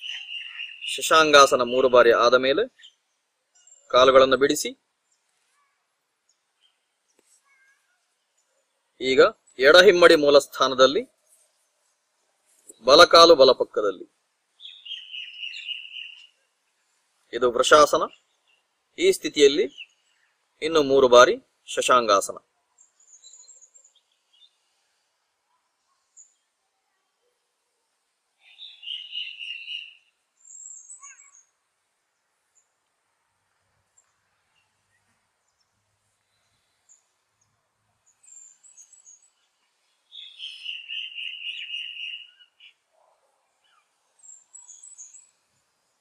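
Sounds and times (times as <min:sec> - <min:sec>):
short high bird chirps: 0:00.0 - 0:02.0, 0:14.6 - 0:16.3, 0:28.4 - 0:31.5, 0:40.1 - 0:42.8
birds chirping rapidly: 0:00.0 - 0:11.0, 0:12.7 - 0:16.5, 0:17.3 - 0:22.1, 0:22.8 - 0:24.9, 0:28.4 - 0:32.8, 0:33.9 - 0:46.0.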